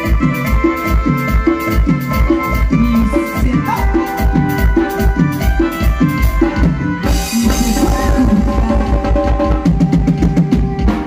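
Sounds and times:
bass line: 0.0 - 11.0
drum kit beat: 0.0 - 11.0
electronic keyboard: 0.0 - 11.0.

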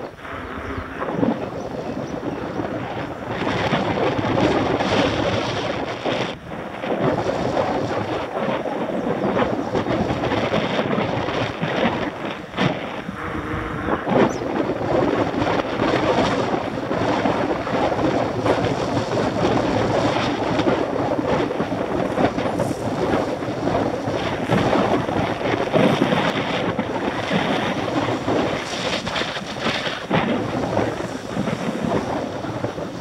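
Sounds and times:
wind rushing over microphone: 0.0 - 33.0.

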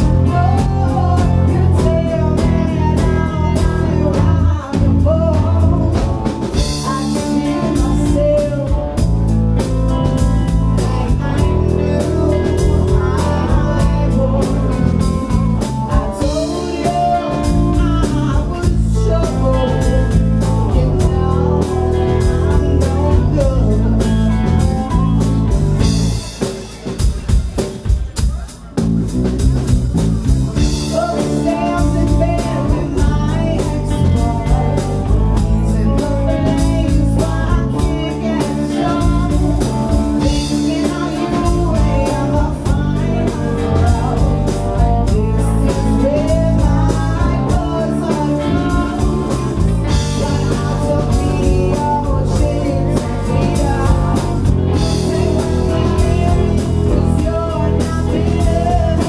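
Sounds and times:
woman singing: 0.0 - 26.4, 30.4 - 59.0
drum kit: 0.0 - 59.0
electric bass: 0.0 - 59.0
electric guitars: 0.0 - 59.0.

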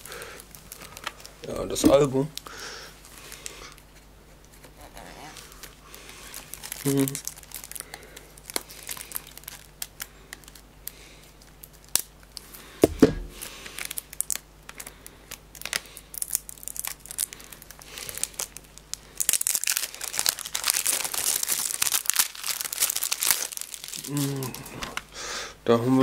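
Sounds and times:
plastic wrapping crinkling: 0.0 - 25.1
dull thump: 12.8 - 13.4.

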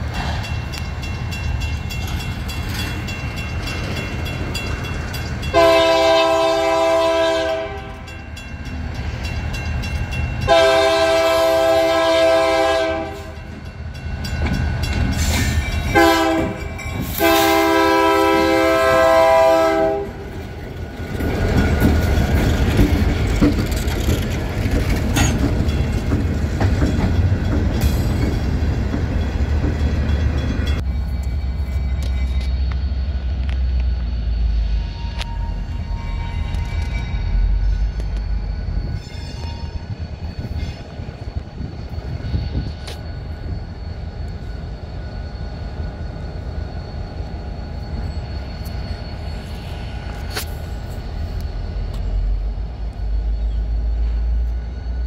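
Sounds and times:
locomotive engine running: 0.0 - 39.0
train passing with rail noise: 0.0 - 55.0
diesel locomotive horn: 5.5 - 8.1, 10.4 - 13.5, 15.9 - 20.5, 34.6 - 36.8.

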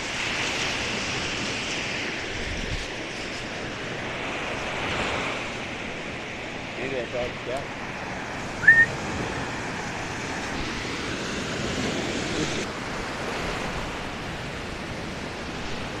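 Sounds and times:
wind on microphone: 0.0 - 6.4
small waves washing on beach: 0.0 - 16.0
brief high chirp: 8.6 - 8.9.

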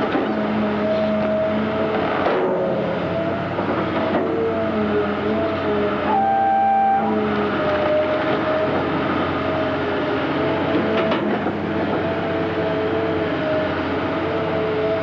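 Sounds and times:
excavator engine drone: 0.0 - 15.0
hydraulic whine: 0.4 - 12.0.

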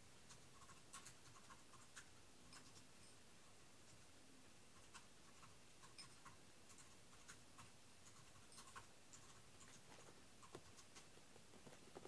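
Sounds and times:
faint small ticks and taps: 10.4 - 12.0.

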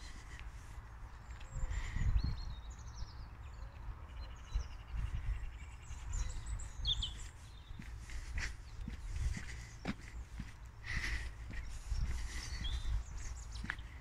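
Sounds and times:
songbirds singing and chirping: 0.0 - 14.0
footsteps on a dirt path: 5.9 - 14.0.

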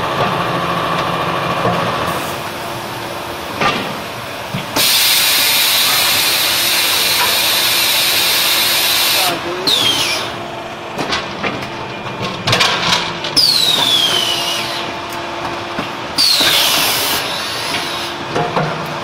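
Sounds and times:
machine hum: 0.0 - 19.0
machine clanks and knocks: 3.5 - 4.8, 10.9 - 14.3, 17.7 - 19.0
loud hissing release with whistle: 4.8 - 10.3, 13.4 - 14.9, 16.2 - 18.2.

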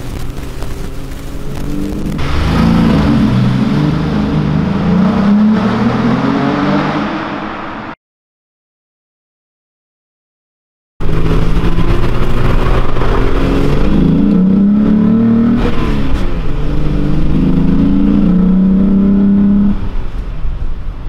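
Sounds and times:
car engine accelerating: 0.0 - 8.0, 11.0 - 20.0.

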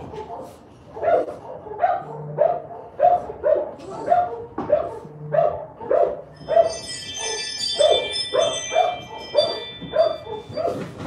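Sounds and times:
dog barking: 0.0 - 11.0.

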